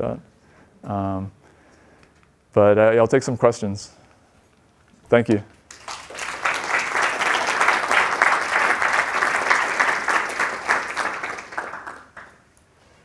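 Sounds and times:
audience applauding: 0:05.7 - 0:12.5.

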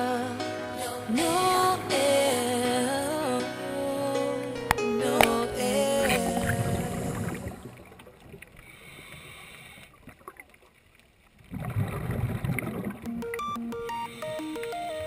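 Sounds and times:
music: 0:00.0 - 0:07.4, 0:13.1 - 0:15.0.

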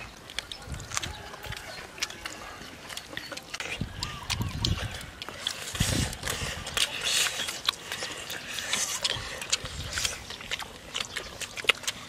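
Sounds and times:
children chewing food: 0:00.0 - 0:12.0.

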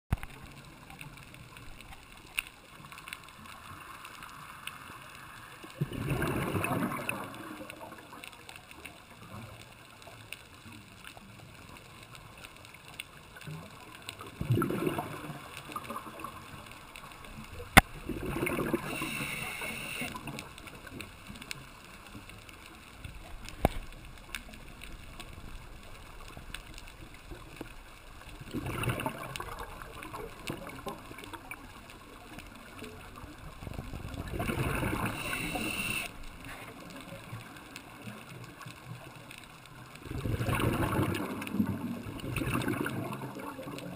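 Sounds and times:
exhaled bubbles: 0:05.3 - 0:08.1, 0:14.2 - 0:21.0, 0:28.2 - 0:31.8, 0:33.0 - 0:37.6, 0:40.0 - 0:43.9
diver breathing through regulator: 0:18.6 - 0:20.1, 0:34.7 - 0:36.1
sharp clicks: 0:35.0 - 0:36.1.

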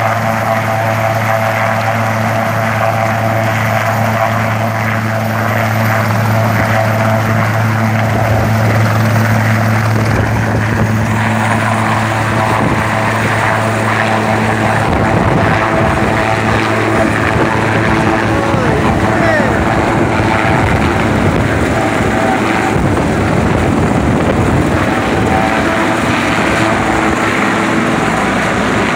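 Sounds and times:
helicopter rotor hum and turbine whine: 0:00.0 - 0:28.9.

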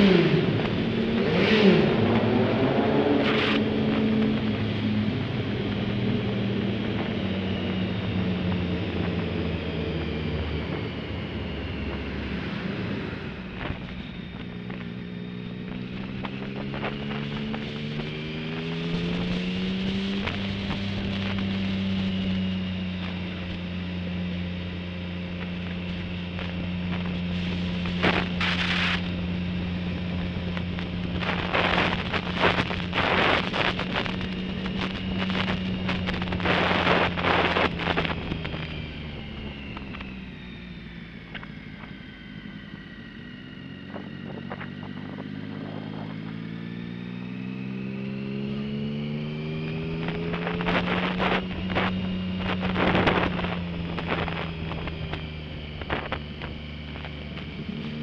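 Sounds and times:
motorcycle engine accelerating: 0:00.0 - 0:58.0
wind gusts on microphone: 0:25.7 - 0:40.4, 0:49.7 - 0:58.0.

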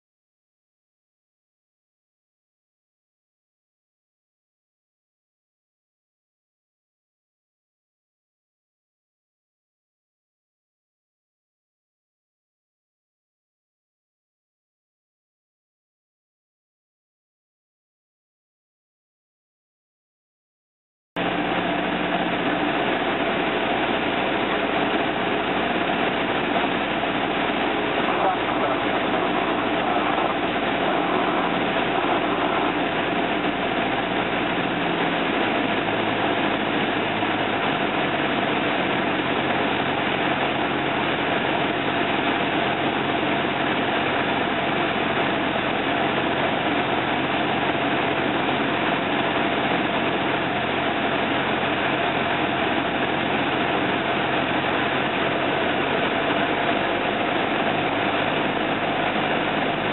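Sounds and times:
airflow noise: 0:21.2 - 0:52.0
airplane engine and propeller droning: 0:21.2 - 0:59.9.

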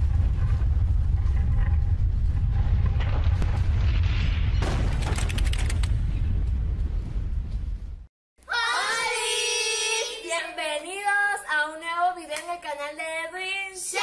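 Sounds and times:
girl singing: 0:08.4 - 0:14.0.

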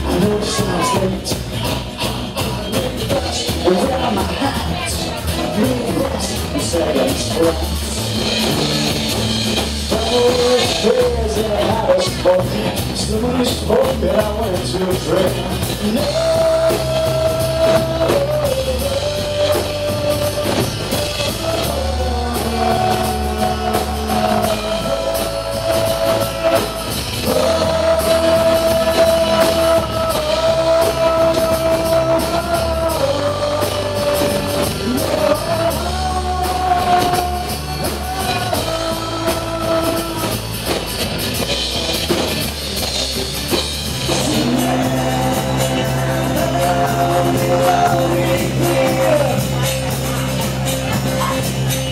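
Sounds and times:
acoustic guitar: 0:00.0 - 0:51.9
drum kit: 0:00.0 - 0:51.9
electric bass: 0:00.0 - 0:51.9
voice holding long notes: 0:15.3 - 0:40.5.

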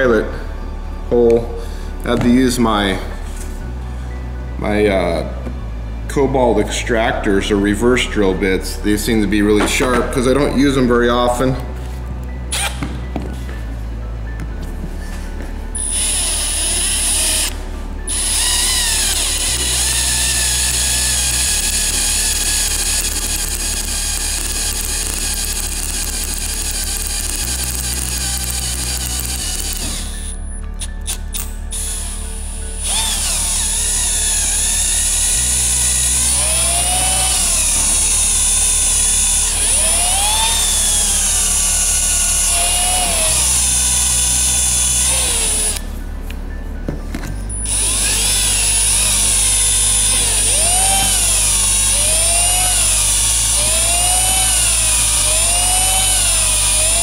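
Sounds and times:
cordless drill whining through metal: 0:12.5 - 0:12.9, 0:15.8 - 0:45.9, 0:47.5 - 0:57.0.

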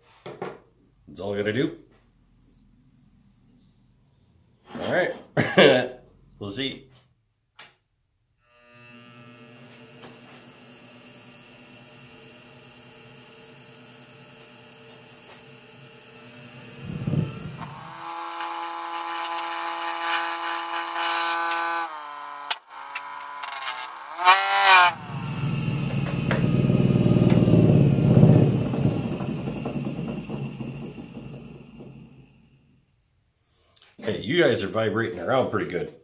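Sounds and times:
lathe motor whine: 0:08.5 - 0:32.6
faint hum: 0:16.0 - 0:20.3
rough rumble of spinning wood: 0:16.4 - 0:19.1, 0:24.9 - 0:32.7
thump: 0:16.8 - 0:17.7, 0:25.8 - 0:32.4.

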